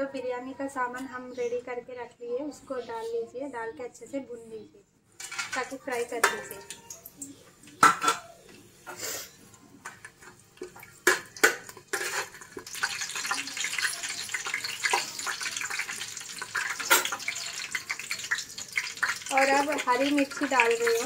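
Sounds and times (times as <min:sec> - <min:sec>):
spices sizzling in hot oil: 0:05.2 - 0:21.0.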